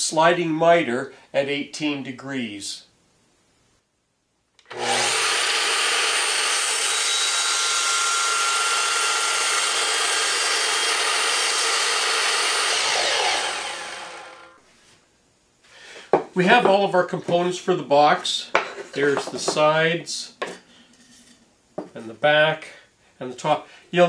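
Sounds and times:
miter saw cutting wood: 0:04.6 - 0:14.6.

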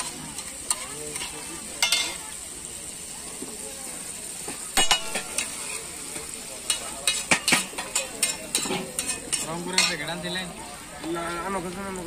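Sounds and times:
food sizzling: 0:00.0 - 0:12.0
metal spatula scraping griddle: 0:04.8 - 0:10.1.

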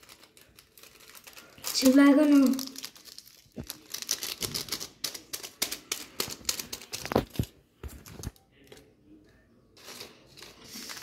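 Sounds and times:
plastic packet crinkling: 0:00.0 - 0:08.9.

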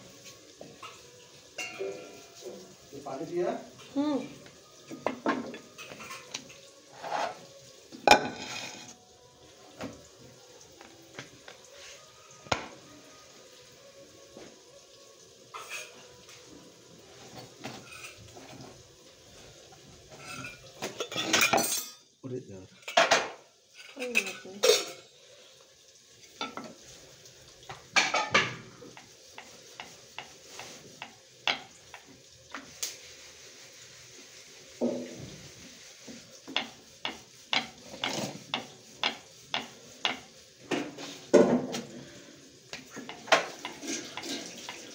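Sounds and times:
pans and utensils clattering: 0:00.0 - 0:04.0, 0:04.7 - 0:09.0, 0:15.5 - 0:22.1, 0:22.7 - 0:25.2, 0:26.2 - 0:27.0, 0:27.6 - 0:32.8, 0:34.6 - 0:44.9
faint steady hiss: 0:00.0 - 0:44.9
metal pan clanging: 0:01.6 - 0:02.7, 0:05.0 - 0:09.0, 0:20.1 - 0:22.0, 0:22.8 - 0:25.1, 0:27.9 - 0:28.7.

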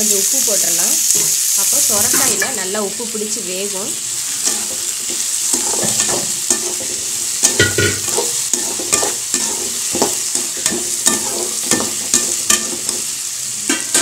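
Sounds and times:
vegetables sizzling in hot oil: 0:00.0 - 0:14.0
metal spatula scraping a pan: 0:04.2 - 0:13.1.

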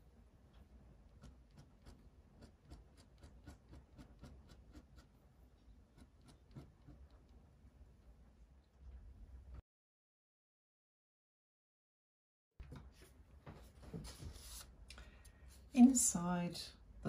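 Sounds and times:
pen nib scratching paper: 0:01.1 - 0:05.2, 0:05.9 - 0:07.2.

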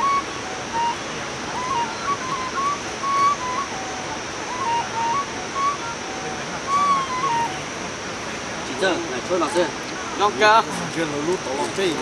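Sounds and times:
bamboo flute melody: 0:00.0 - 0:09.4
steady background hiss: 0:00.0 - 0:12.0.

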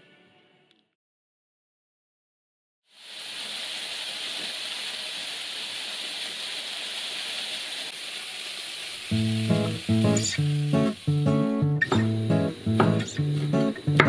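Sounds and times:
chicken sizzling in a frying pan: 0:02.9 - 0:14.0.

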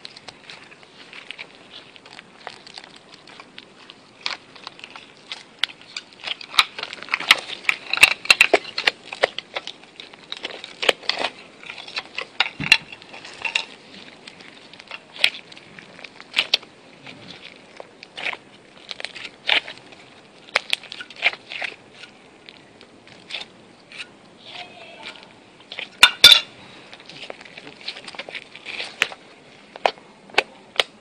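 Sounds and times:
slime clicking and popping: 0:17.3 - 0:23.5, 0:29.8 - 0:31.0.

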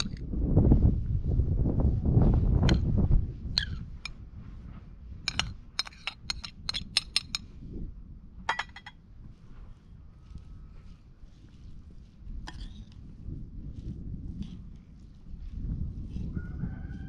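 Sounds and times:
low rumbling noise: 0:00.0 - 0:05.9
metal spoon clinking on ceramic: 0:05.3 - 0:07.4, 0:08.5 - 0:08.9.

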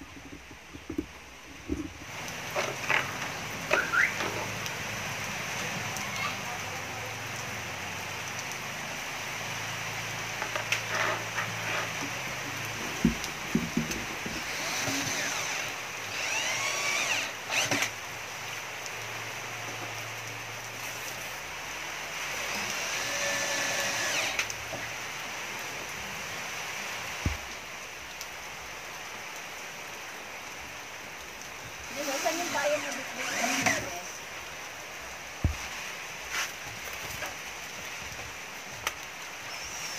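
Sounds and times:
steady hiss: 0:00.0 - 0:39.9
cordless drill driving screws: 0:14.2 - 0:18.0, 0:22.5 - 0:24.5, 0:31.9 - 0:34.2, 0:39.5 - 0:39.9.

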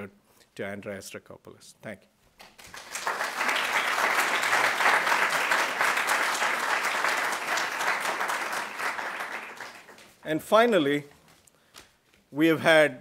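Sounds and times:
audience applauding: 0:02.4 - 0:10.2.

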